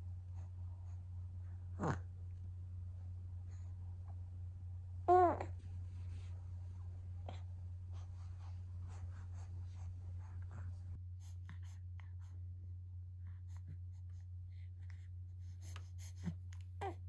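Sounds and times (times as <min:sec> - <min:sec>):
steady low hum: 0:00.0 - 0:17.0
faint rustling: 0:05.4 - 0:11.0.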